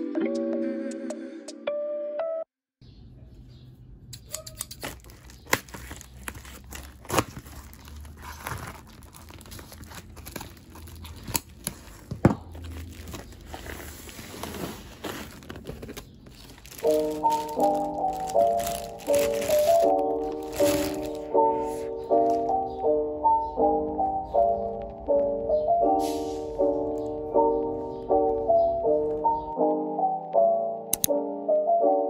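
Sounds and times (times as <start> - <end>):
scissors snipping: 4.1 - 7.7
plastic mailer crinkling: 4.8 - 22.6.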